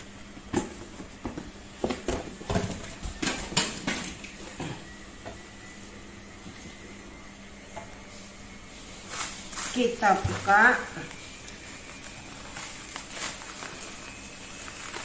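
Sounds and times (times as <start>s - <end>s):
packaging rustling and knocking: 9.1s - 15.0s.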